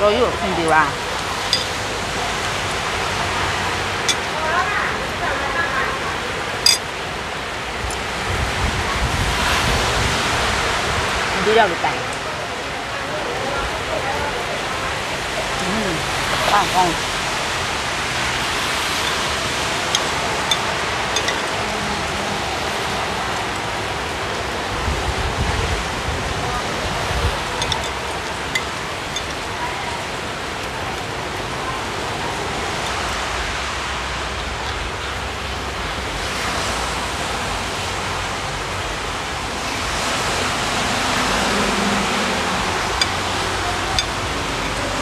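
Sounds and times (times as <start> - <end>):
cutlery clicking on a plate: 1.5 - 1.7, 19.9 - 21.5, 27.6 - 29.4.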